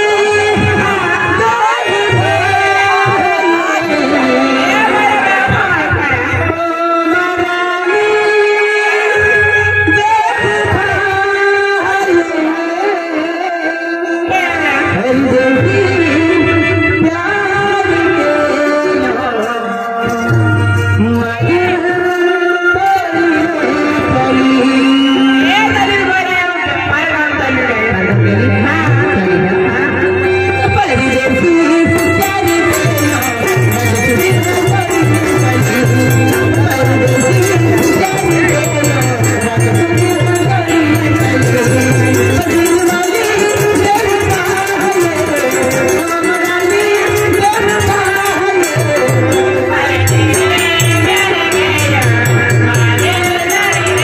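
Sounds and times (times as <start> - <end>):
folk song singing: 0.0 - 54.0
held melody notes: 31.0 - 54.0
drums playing steady beat: 31.6 - 54.0.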